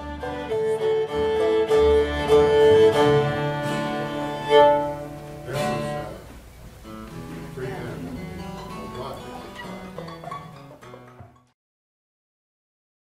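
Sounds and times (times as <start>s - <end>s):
fiddle bowing long notes: 0.0s - 6.2s
upright bass: 0.0s - 10.8s
guitar: 0.0s - 11.6s.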